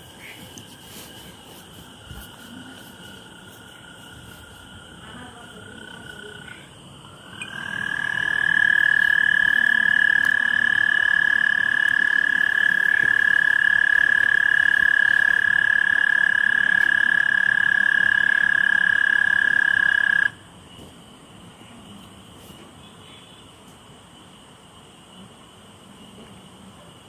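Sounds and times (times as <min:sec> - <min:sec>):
toad trilling: 0:05.6 - 0:20.4.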